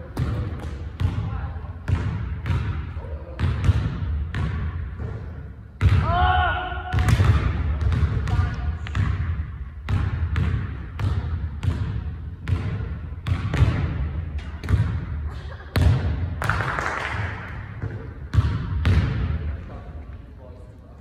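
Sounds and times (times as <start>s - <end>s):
basketball bouncing on wooden floor: 0.2s - 1.3s, 1.9s - 2.8s, 3.4s - 5.2s, 6.9s - 15.1s, 17.8s - 19.4s.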